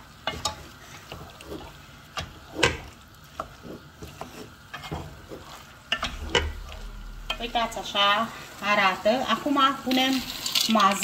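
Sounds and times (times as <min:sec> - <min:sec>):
food frying in hot oil: 0:00.0 - 0:11.0
wooden spoon scraping and knocking pot: 0:00.2 - 0:07.9.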